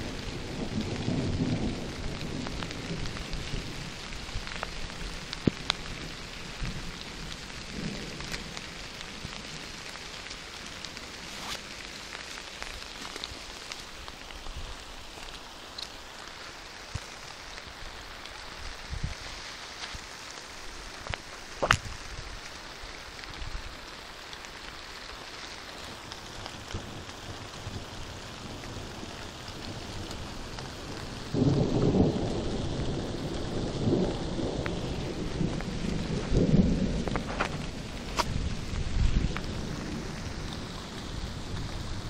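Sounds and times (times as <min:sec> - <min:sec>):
rolling thunder rumble: 0:00.0 - 0:11.3, 0:26.6 - 0:42.0
steady rain hiss: 0:00.0 - 0:42.0.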